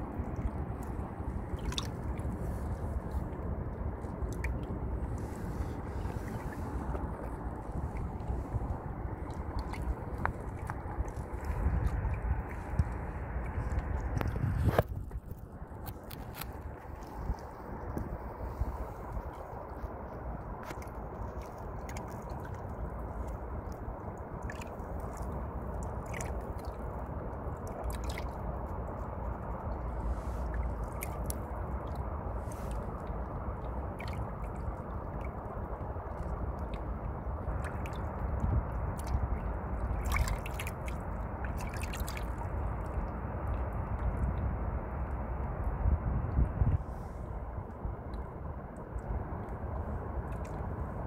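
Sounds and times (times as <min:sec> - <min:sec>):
low rumble: 0:00.0 - 0:25.6
river water lapping: 0:00.0 - 0:51.0.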